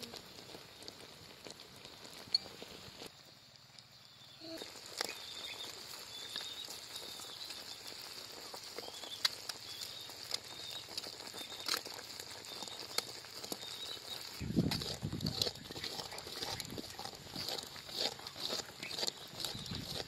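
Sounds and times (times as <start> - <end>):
syrup bubbling fizz with pops: 0.0 - 20.0
spoon stirring and scraping: 9.6 - 20.0.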